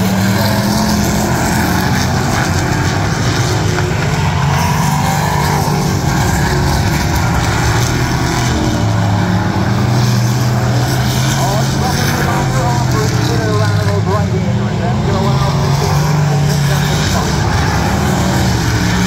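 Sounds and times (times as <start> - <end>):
race car engines drone: 0.0 - 19.0.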